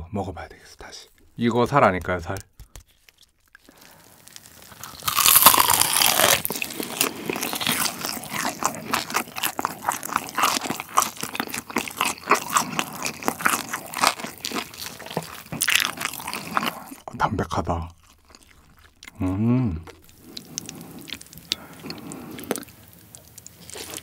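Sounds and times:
crunching bite into crisp skin: 0:02.6 - 0:17.0
crunchy chewing: 0:02.8 - 0:17.1, 0:17.9 - 0:19.2, 0:19.8 - 0:24.0.

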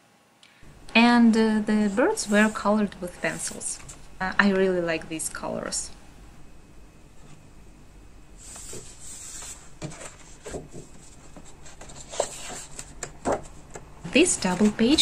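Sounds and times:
paper rustling: 0:08.4 - 0:15.0.

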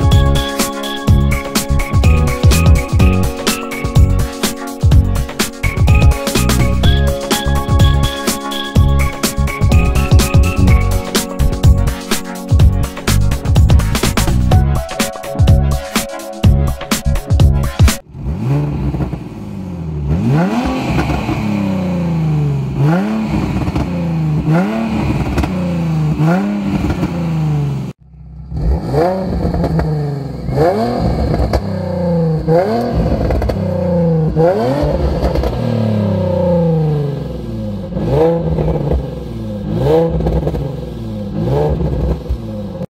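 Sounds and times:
car engine revving: 0:17.1 - 0:42.9.

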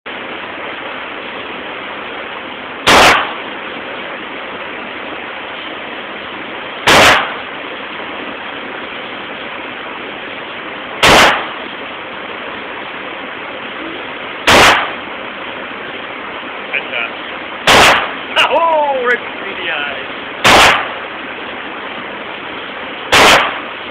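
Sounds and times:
steady hiss: 0:00.1 - 0:23.9
handgun shots echoing: 0:02.9 - 0:03.4, 0:11.0 - 0:11.6, 0:14.5 - 0:15.0, 0:17.7 - 0:18.2, 0:20.4 - 0:20.9, 0:23.1 - 0:23.6.

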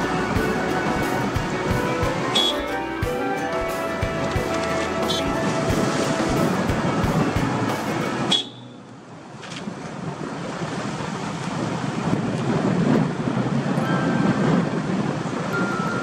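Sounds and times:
background music: 0:00.0 - 0:08.9
car tyre and wind noise: 0:04.1 - 0:16.0.

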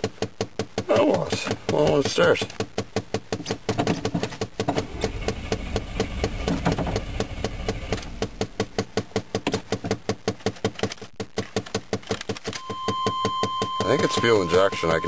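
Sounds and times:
steady ticking: 0:00.0 - 0:15.0
starter cranking engine: 0:04.6 - 0:09.8.

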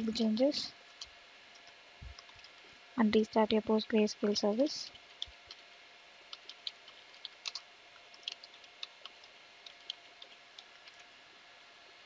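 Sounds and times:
keyboard key clicks: 0:06.3 - 0:07.6.

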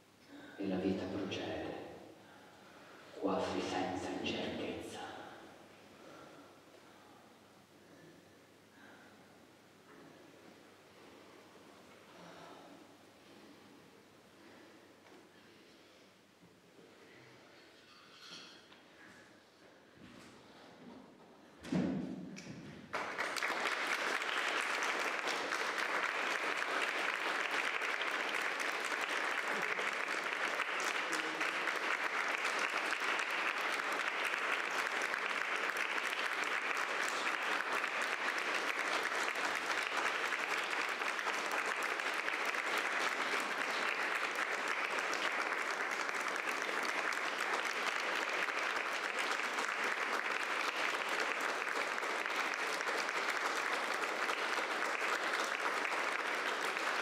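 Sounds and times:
audience applause: 0:22.9 - 0:57.0.

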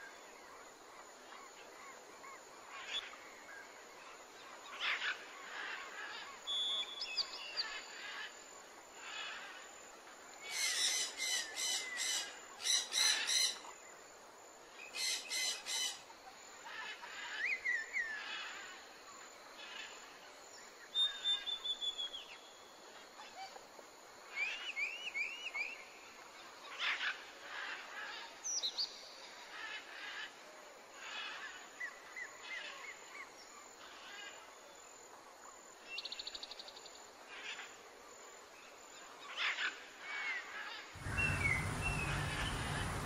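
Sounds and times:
faint steady hiss: 0:00.0 - 0:43.0
small birds chirping: 0:41.0 - 0:43.0.

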